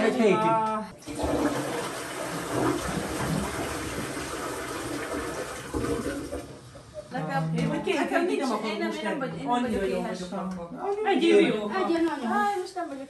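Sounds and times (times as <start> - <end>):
toilet flushing: 1.0 - 7.2.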